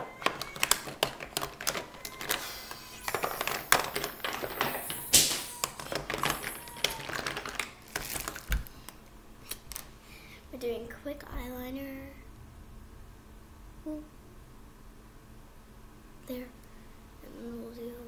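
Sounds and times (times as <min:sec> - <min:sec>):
clatter of small plastic cases: 0:00.0 - 0:09.9.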